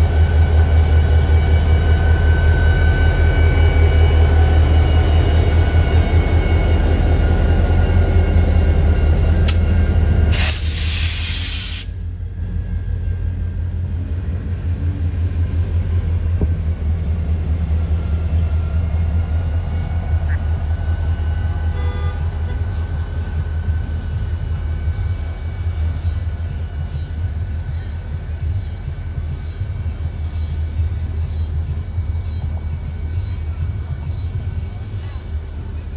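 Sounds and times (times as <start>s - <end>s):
diesel locomotives rumbling: 0.0s - 35.9s
loud hiss burst: 10.3s - 12.0s.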